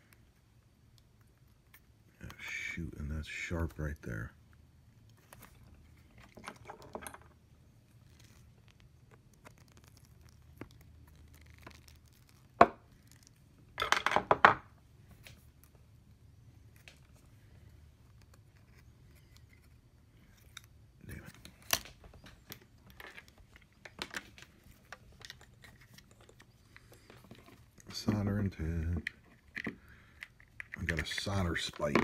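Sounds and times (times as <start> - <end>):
faint low hum: 0.0 - 32.0.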